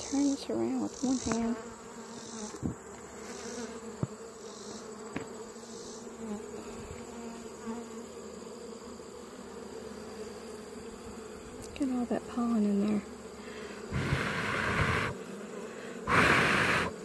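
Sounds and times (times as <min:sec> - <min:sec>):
bees buzzing: 0:00.0 - 0:17.0.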